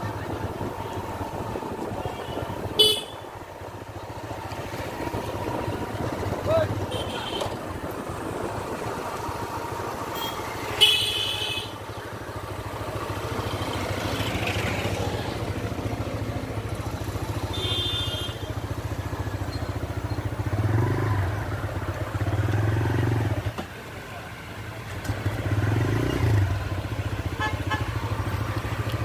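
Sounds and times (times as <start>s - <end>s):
motorcycle engine running: 0.0s - 29.0s
street traffic: 0.0s - 29.0s.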